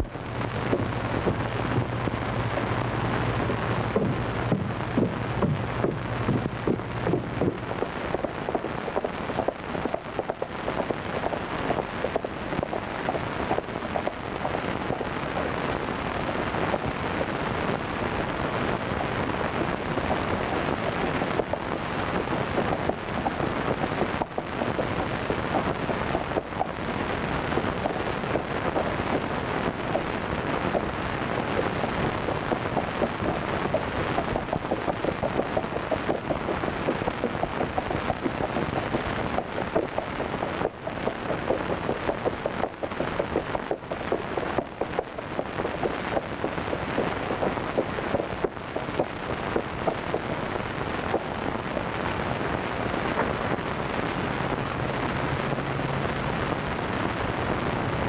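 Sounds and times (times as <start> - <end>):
low steady hum: 0.0 - 58.0.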